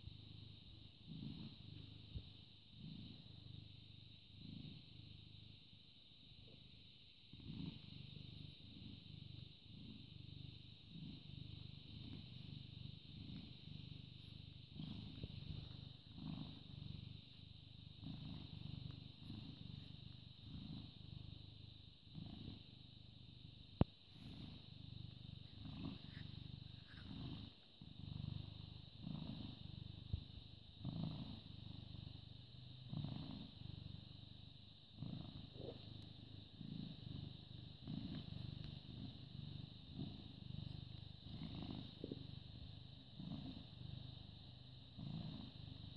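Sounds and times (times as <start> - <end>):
cat purring: 0.0 - 45.9.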